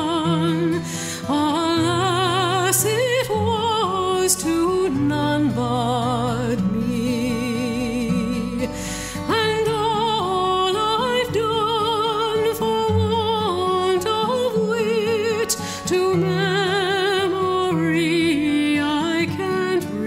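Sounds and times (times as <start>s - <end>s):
person singing with vibrato: 0.0s - 20.0s.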